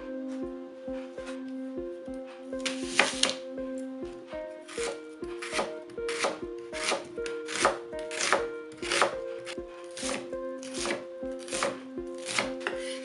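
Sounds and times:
background music: 0:00.0 - 0:13.0
knife chopping on cutting board: 0:04.8 - 0:09.2, 0:10.0 - 0:13.0.

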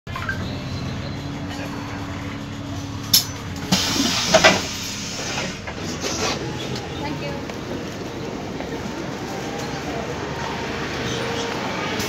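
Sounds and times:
bus engine idling: 0:00.1 - 0:12.0
compressed air hiss: 0:03.7 - 0:05.6.

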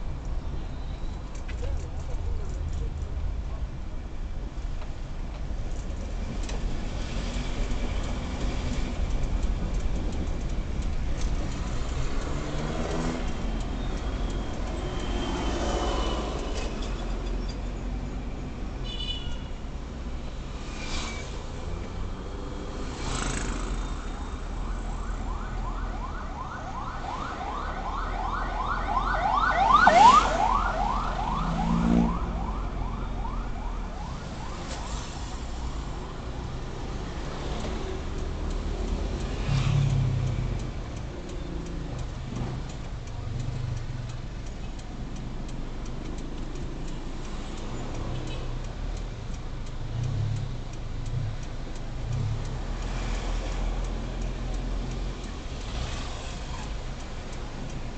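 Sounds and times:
car engine and road rumble: 0:00.0 - 0:57.9
siren yelping: 0:24.2 - 0:34.7
steady fast ticking: 0:35.6 - 0:57.9.

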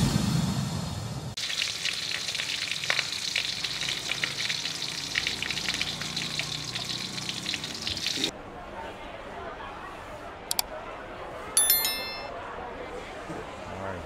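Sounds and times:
batter sizzling in a hot pan: 0:01.4 - 0:08.3.

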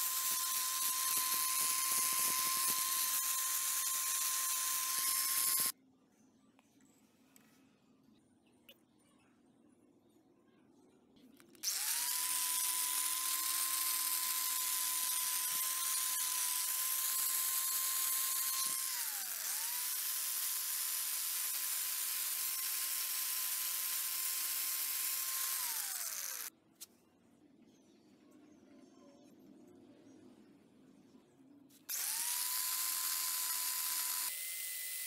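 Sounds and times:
angle grinder whining: 0:00.0 - 0:05.7, 0:11.6 - 0:26.5, 0:31.9 - 0:35.0.

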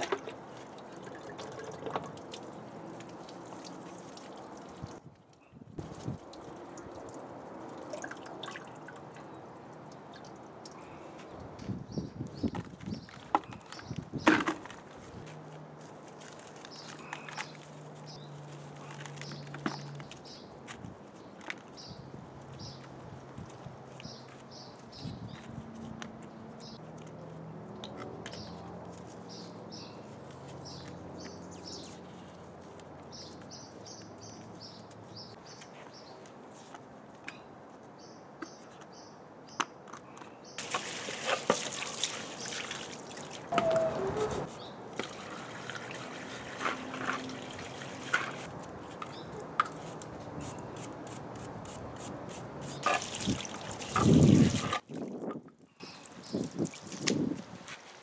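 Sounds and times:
water from hose splashing: 0:00.0 - 0:05.0, 0:05.8 - 0:10.8, 0:40.6 - 0:50.2, 0:52.0 - 0:58.0
birds chirping: 0:43.5 - 0:44.8.

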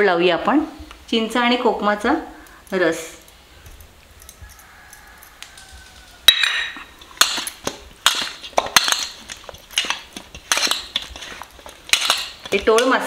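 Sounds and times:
metal plate clanking and ringing: 0:06.3 - 0:07.5.

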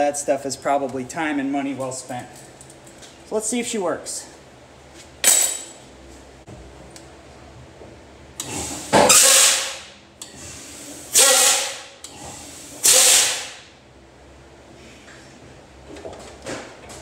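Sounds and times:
air brake hisses: 0:12.5 - 0:13.6.

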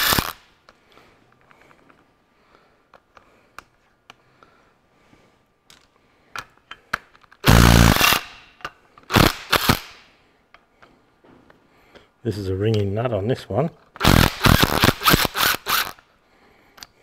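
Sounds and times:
cordless power tool bursts: 0:00.0 - 0:00.4, 0:07.4 - 0:08.4, 0:09.1 - 0:10.0, 0:14.0 - 0:16.0.

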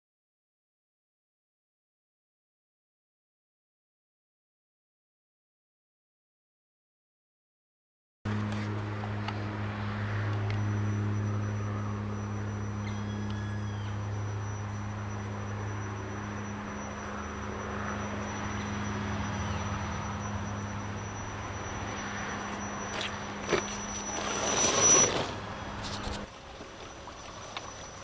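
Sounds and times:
rc car motor whine: 0:10.4 - 0:26.3.

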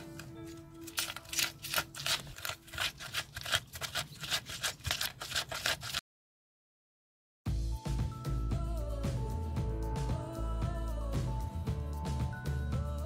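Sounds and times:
music: 0:00.0 - 0:03.5, 0:07.5 - 0:13.0
pestle grinding in clay bowl: 0:00.9 - 0:06.0.

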